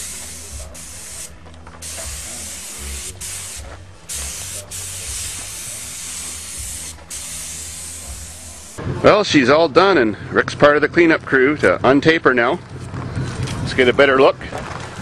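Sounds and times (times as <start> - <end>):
paint spray gun hissing: 0.0 - 8.8.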